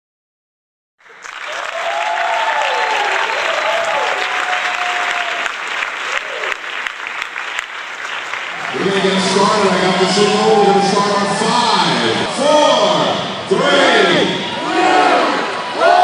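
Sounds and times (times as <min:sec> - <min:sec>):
crowd cheering and applauding: 0:01.0 - 0:13.0.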